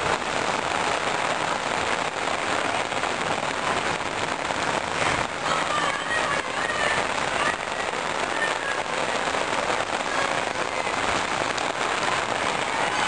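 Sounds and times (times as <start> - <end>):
rain splashing into standing water: 0.0 - 13.0.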